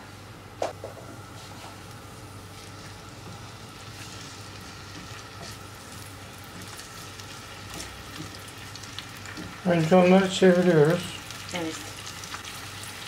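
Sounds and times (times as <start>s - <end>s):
vegetables sizzling in a frying pan: 1.4s - 13.0s
spatula stirring in a pan: 2.5s - 11.3s.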